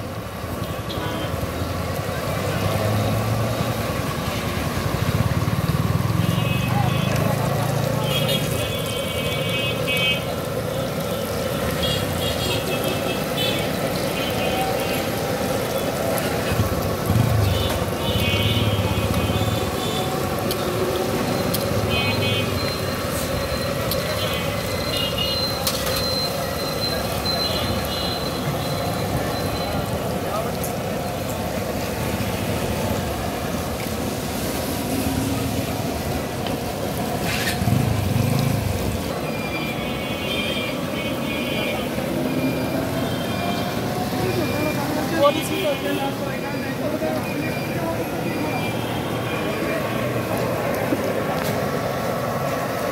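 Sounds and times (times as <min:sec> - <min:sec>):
street traffic roar: 0:00.0 - 0:52.9
food sizzling in hot oil: 0:01.6 - 0:30.1, 0:33.8 - 0:40.4.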